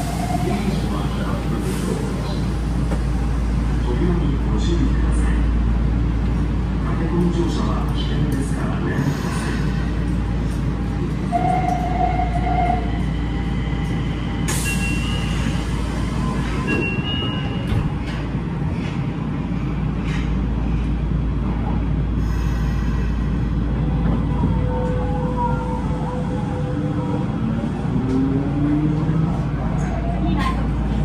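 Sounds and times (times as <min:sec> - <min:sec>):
train rumble in tunnel: 0:00.0 - 0:31.0.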